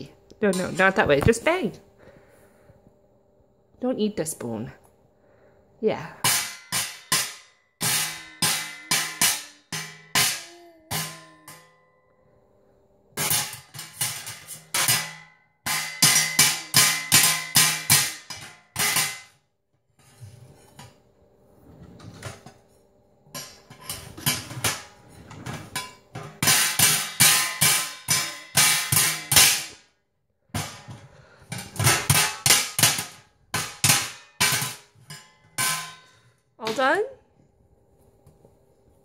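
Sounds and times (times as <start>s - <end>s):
spoon banging on metal lid: 6.2s - 11.8s, 13.2s - 19.3s, 25.7s - 29.8s, 30.6s - 36.9s.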